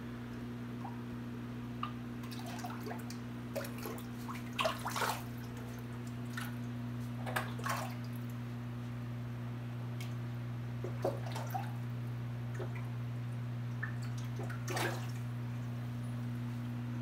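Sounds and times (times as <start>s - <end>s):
steady low hum: 0.0s - 17.0s
small water splashes and drips: 1.8s - 8.4s, 10.0s - 11.9s, 12.5s - 13.0s, 13.7s - 15.7s.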